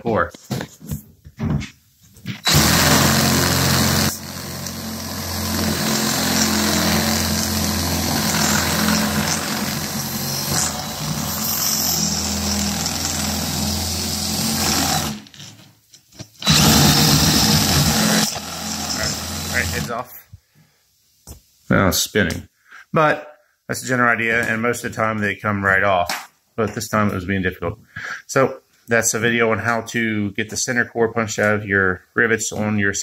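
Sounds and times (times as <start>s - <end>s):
power drill drilling into metal: 2.4s - 15.3s, 16.4s - 19.9s.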